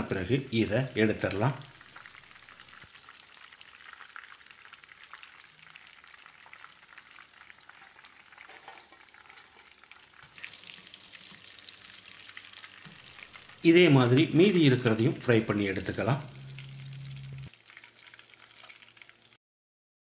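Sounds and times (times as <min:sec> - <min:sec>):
chicken sizzling in hot oil: 0:00.0 - 0:19.4.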